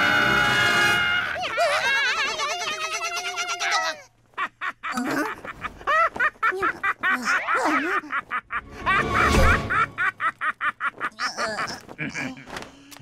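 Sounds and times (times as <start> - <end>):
cartoon gibberish voices squawking: 1.3 - 4.1
background music: 8.6 - 10.1.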